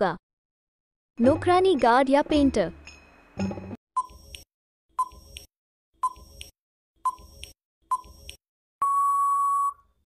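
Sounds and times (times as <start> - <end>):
long steady beep: 8.8 - 9.8.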